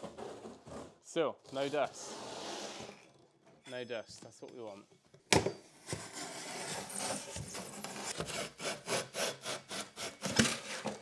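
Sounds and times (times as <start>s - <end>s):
blade scraping through foam: 0.0s - 3.1s, 6.0s - 11.0s.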